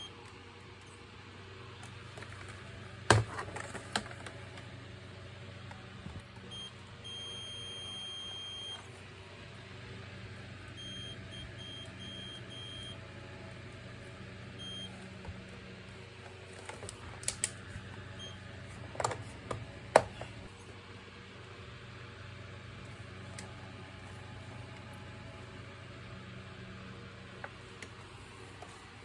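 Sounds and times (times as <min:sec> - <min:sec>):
multimeter continuity beeps: 0:06.5 - 0:08.8, 0:10.8 - 0:13.0, 0:14.6 - 0:15.0.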